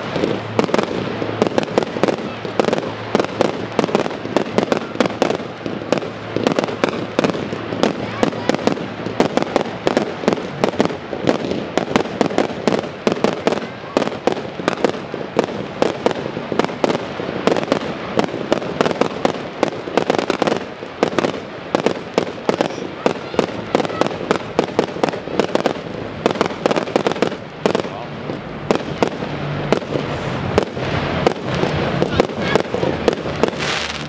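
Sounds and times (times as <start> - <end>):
firework crackling: 0.0 - 34.0.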